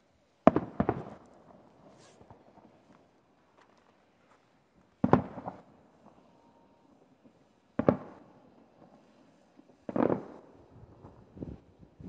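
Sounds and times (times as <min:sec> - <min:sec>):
firework shells booming: 0:05.0 - 0:05.7, 0:07.8 - 0:08.3, 0:09.9 - 0:11.2.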